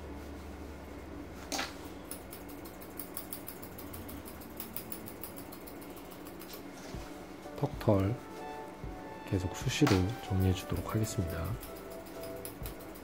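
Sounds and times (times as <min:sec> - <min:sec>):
low hum: 0:00.0 - 0:13.0
scissors snipping fur: 0:01.5 - 0:06.8, 0:09.8 - 0:13.0.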